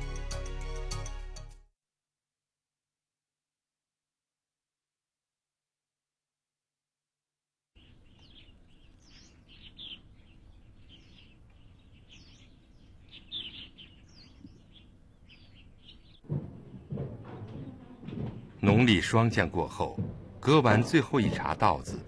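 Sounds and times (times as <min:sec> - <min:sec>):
faint outdoor hiss: 0:07.8 - 0:20.6
small birds chirping: 0:07.8 - 0:22.0.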